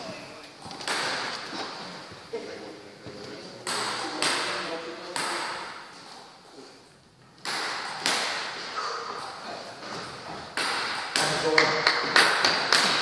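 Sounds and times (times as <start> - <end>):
table tennis ball bouncing: 0.7 - 1.5, 3.6 - 5.8, 7.4 - 8.7, 10.4 - 13.0.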